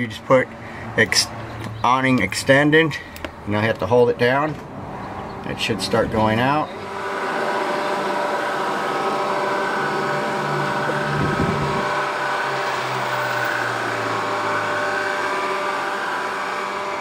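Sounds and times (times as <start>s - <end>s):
awning motor whine: 4.6s - 17.0s.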